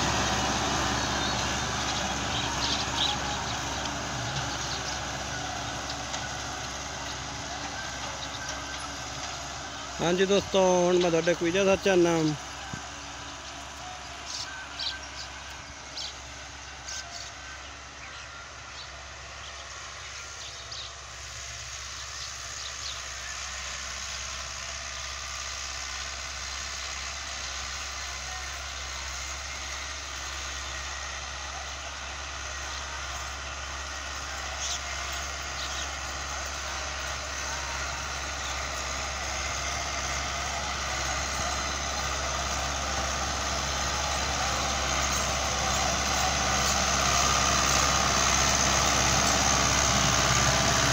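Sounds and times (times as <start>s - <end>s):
tractor diesel engine under load: 0.0s - 50.9s.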